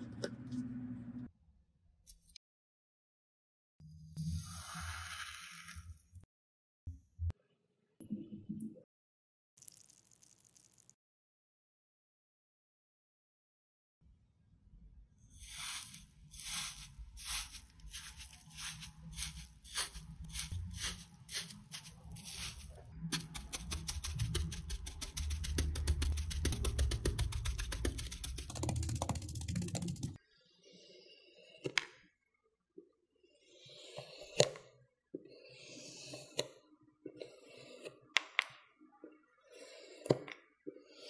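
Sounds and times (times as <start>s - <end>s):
loop tool scraping sand: 15.3s - 28.6s
pestle crushing sand: 15.4s - 30.0s.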